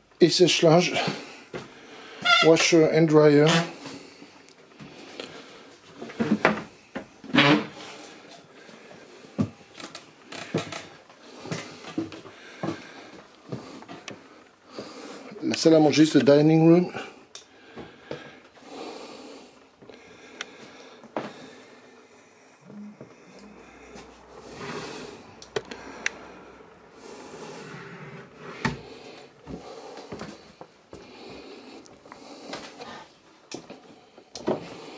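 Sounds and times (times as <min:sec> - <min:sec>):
footsteps on wooden floorboards: 0:09.3 - 0:15.0, 0:28.5 - 0:32.7.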